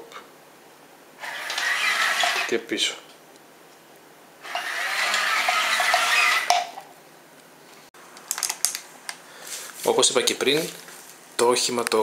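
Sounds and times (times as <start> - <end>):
toy motors whirring: 1.2 - 2.5, 4.4 - 6.7.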